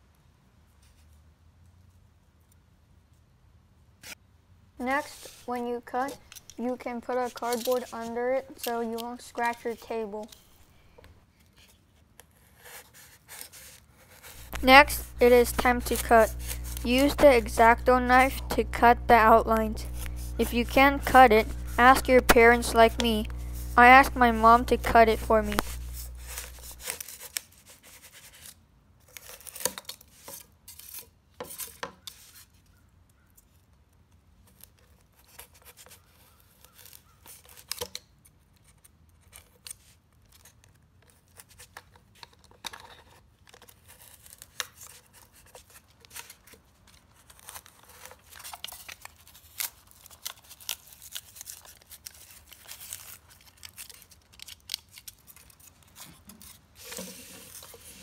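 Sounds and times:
knife cutting styrofoam: 5.1 - 9.6, 12.3 - 32.5, 47.2 - 58.0.

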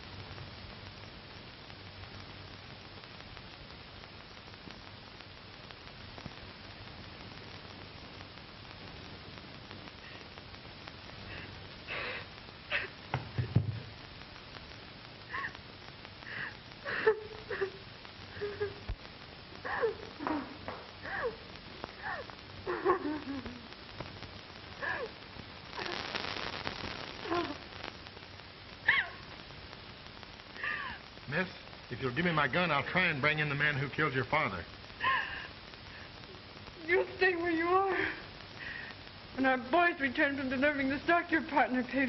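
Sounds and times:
old film soundtrack hiss: 0.0 - 42.0
woman sobbing and sniffling: 11.9 - 13.0, 19.6 - 20.2, 21.0 - 21.4, 22.0 - 23.6, 24.8 - 25.2, 35.0 - 35.6.

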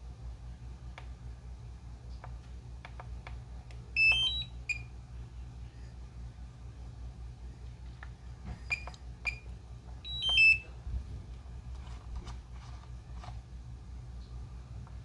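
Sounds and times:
low steady hum: 0.0 - 15.0
handling clicks and taps: 2.1 - 3.9
short electronic beep: 4.0 - 4.8.

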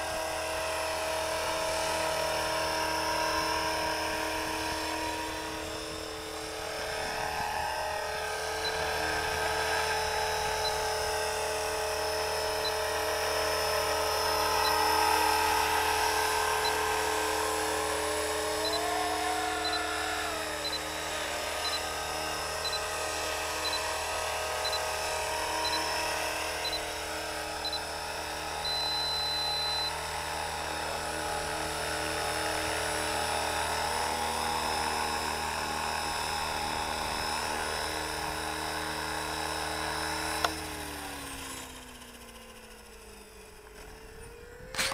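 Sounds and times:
model helicopter rotor whine: 0.0 - 44.9
high electronic beeps: 10.5 - 11.0, 19.6 - 19.9, 20.6 - 20.8, 21.6 - 21.8, 22.6 - 22.9, 23.6 - 23.8, 24.6 - 24.8, 25.6 - 26.0, 26.6 - 26.9, 27.6 - 27.9, 28.6 - 29.9.

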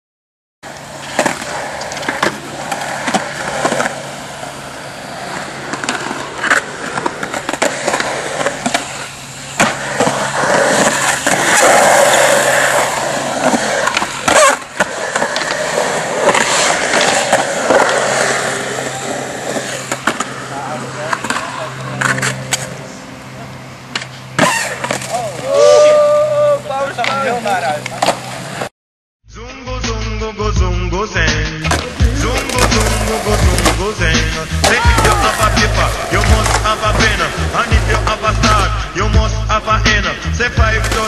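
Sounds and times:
skateboard wheels rolling on concrete: 0.6 - 28.7, 31.1 - 41.0
skateboard clacking on ground: 0.7 - 4.2, 5.3 - 22.8, 27.0 - 28.7, 34.5 - 37.9.

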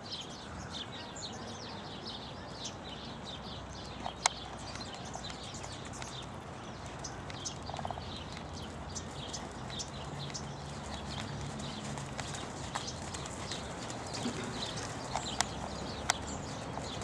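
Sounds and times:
horse hooves trotting on sand: 3.8 - 17.0.

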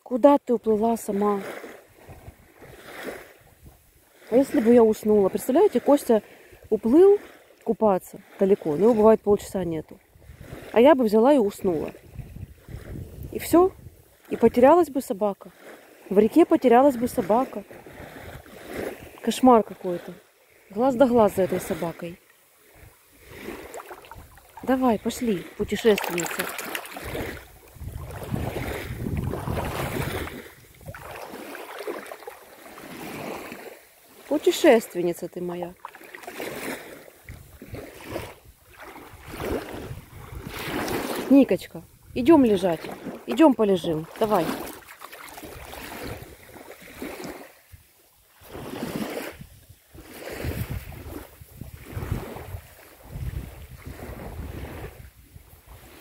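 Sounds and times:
small waves washing ashore: 0.0 - 56.0
wind buffeting microphone: 8.9 - 14.8, 22.6 - 31.5, 37.3 - 43.2, 48.5 - 56.0
dog splashing through water: 23.2 - 34.3, 44.0 - 46.3.

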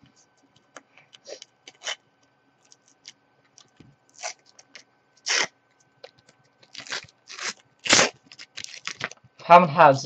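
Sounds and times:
foil wrapper tearing and crinkling: 1.6 - 2.0, 2.6 - 9.2.

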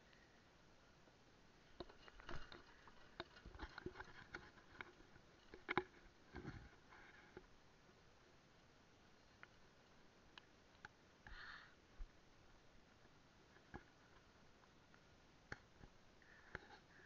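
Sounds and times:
faint clicks and taps: 1.7 - 7.5, 13.0 - 16.8.

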